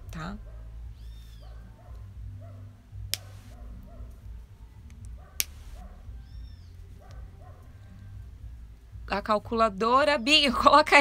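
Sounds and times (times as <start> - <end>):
steady low hum: 1.6 - 9.7
sharp clicks: 4.8 - 5.8.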